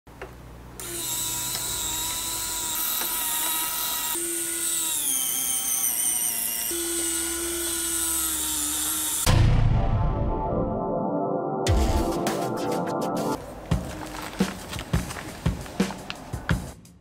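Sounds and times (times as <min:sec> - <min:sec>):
small electric winch motor whining: 0:00.8 - 0:09.3.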